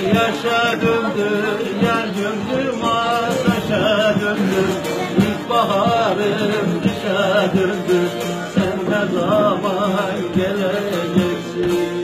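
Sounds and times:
long-necked lute plucked: 0.0s - 12.0s
man singing folk melody: 0.0s - 12.0s.

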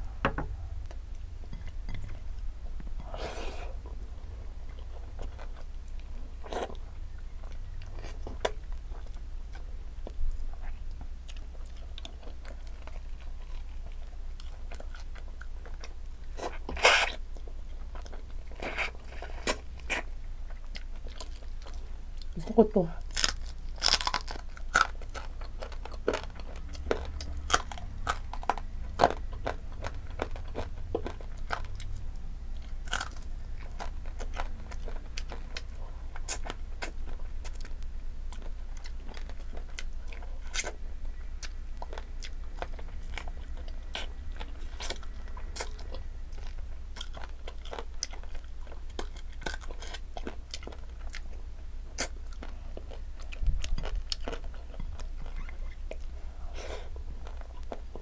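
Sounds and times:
low steady hum: 0.0s - 58.0s
crunchy bites: 23.0s - 32.0s, 32.7s - 37.7s.

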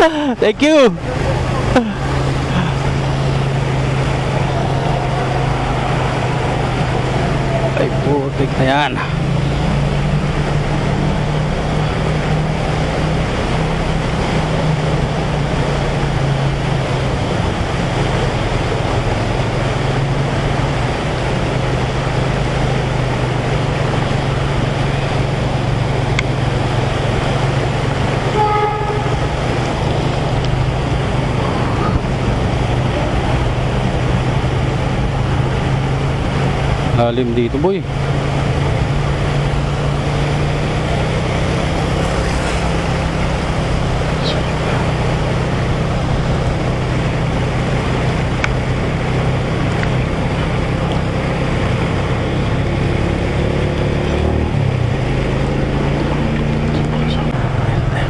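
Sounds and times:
motorcycle engine running: 1.0s - 58.0s
vehicle horn toot: 28.3s - 29.3s.

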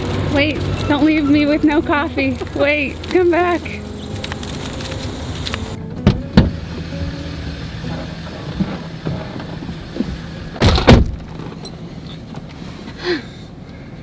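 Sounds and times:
truck engine idling: 0.0s - 14.0s
truck doors shutting: 3.8s - 12.5s.

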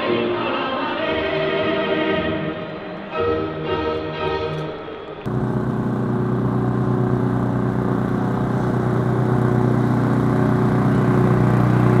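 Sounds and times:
lawn mower engine running: 5.3s - 12.0s.

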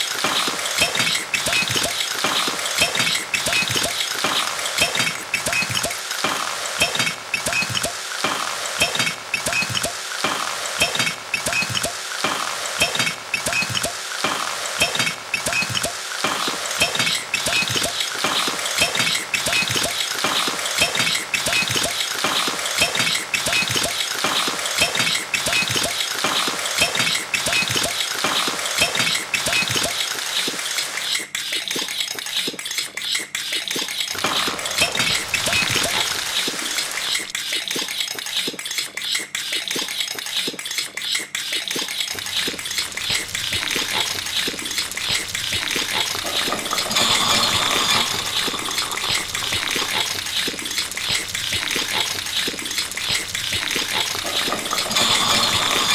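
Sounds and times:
scratchy clinking noise: 41.8s - 55.9s.

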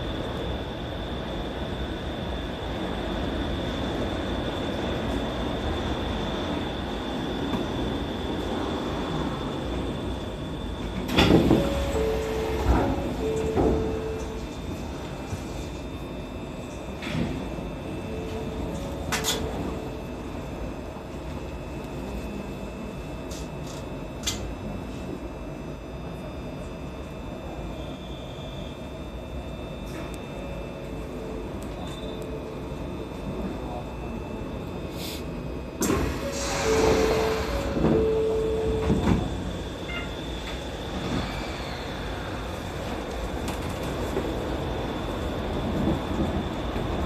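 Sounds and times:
faint high steady tones: 1.3s - 23.3s, 27.1s - 43.4s
sliding doors closing: 10.8s - 15.1s, 35.8s - 39.7s, 40.4s - 44.5s
two-tone chime: 11.6s - 14.4s.

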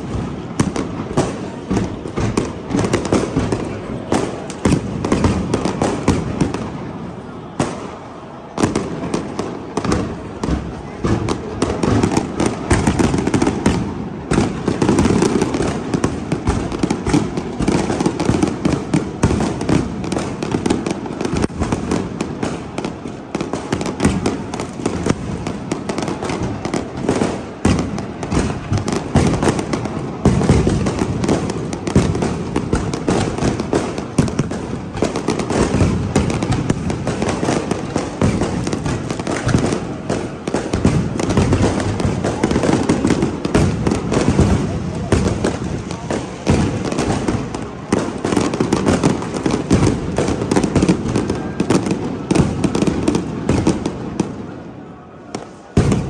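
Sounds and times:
fireworks bangs and crackling: 0.0s - 56.0s.

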